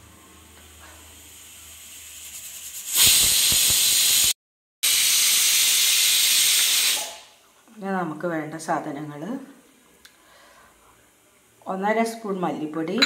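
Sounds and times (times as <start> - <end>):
pressure cooker steam hiss: 0.0 - 7.4.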